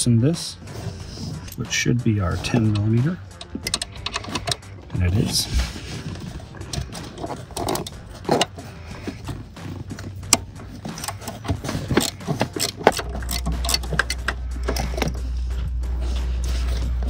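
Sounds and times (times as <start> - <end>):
ratchet clicking: 2.5 - 4.7, 6.6 - 8.6, 9.7 - 15.2.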